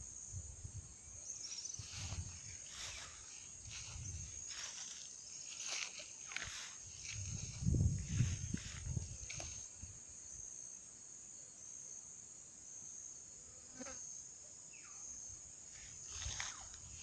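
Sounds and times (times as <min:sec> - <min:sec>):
insects shrilling: 0:01.2 - 0:10.7, 0:15.7 - 0:17.0.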